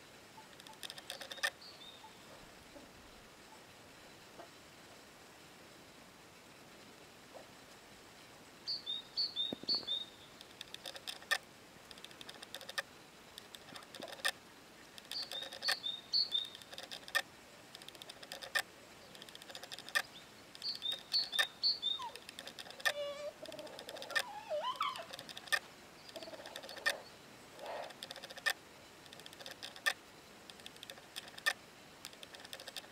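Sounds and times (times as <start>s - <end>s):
songbird chirping: 0.4s - 4.6s, 8.6s - 32.9s
sharp clicks: 0.5s - 1.6s, 9.4s - 27.0s, 27.8s - 32.9s
sliding wavering bird calls: 15.0s - 17.1s, 19.5s - 28.2s.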